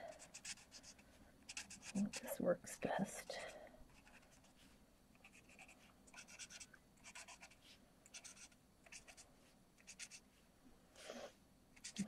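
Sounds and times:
marker tip scratching on cardstock: 5.2s - 9.2s, 9.8s - 10.2s.

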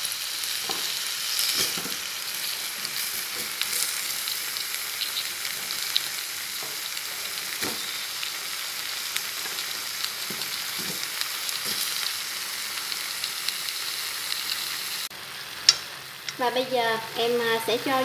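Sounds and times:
food sizzling in hot oil: 0.0s - 18.0s
small crackles: 0.6s - 8.4s.

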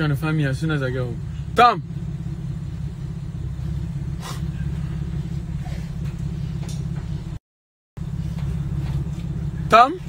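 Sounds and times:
car engine idling: 0.0s - 7.4s, 8.0s - 10.0s.

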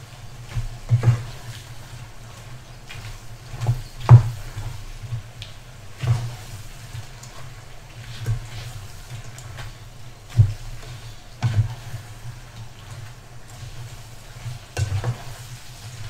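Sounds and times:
faint frying sizzle: 0.0s - 16.0s.

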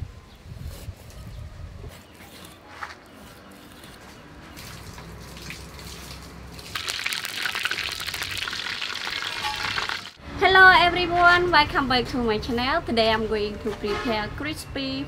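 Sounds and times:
fish frying in hot oil: 6.7s - 10.2s.

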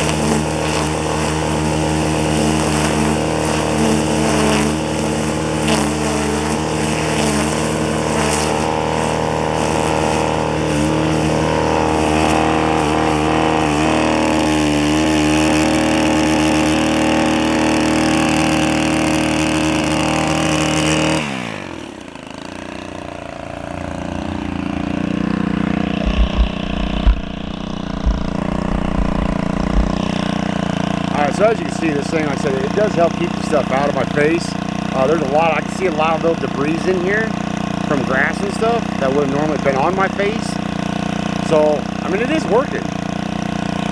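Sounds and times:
string trimmer engine cutting grass: 0.0s - 43.9s
thumps: 26.0s - 30.1s
low rumble: 26.0s - 30.4s.

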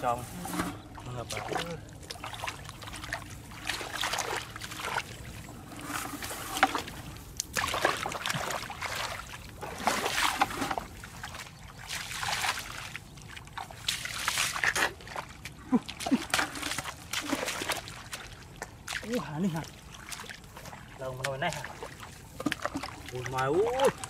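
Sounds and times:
hands sloshing in muddy water: 0.0s - 24.0s.

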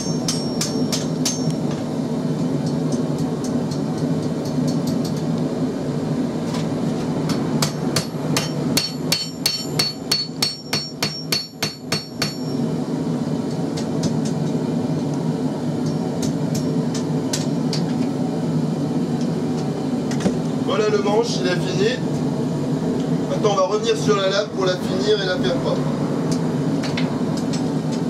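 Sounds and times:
hammer ringing on anvil: 0.0s - 1.6s, 7.6s - 12.6s.

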